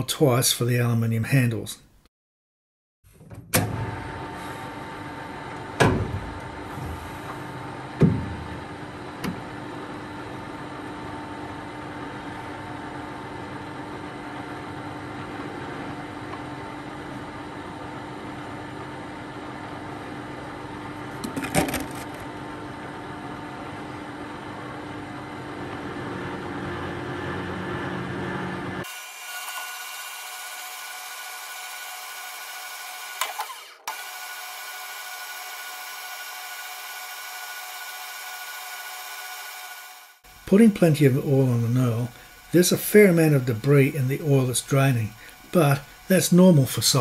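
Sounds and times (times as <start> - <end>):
metal lathe humming: 28.8 - 47.0.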